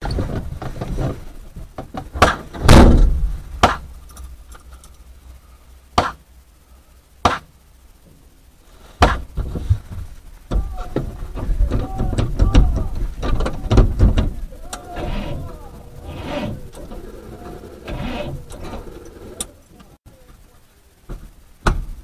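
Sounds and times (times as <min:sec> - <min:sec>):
sharp bangs: 0:02.2 - 0:04.0.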